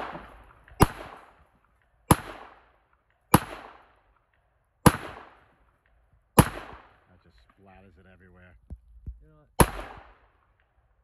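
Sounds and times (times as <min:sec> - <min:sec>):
gunshots with echo: 0:00.0 - 0:01.5, 0:02.1 - 0:04.0, 0:04.8 - 0:05.6, 0:06.4 - 0:07.7, 0:09.6 - 0:10.6.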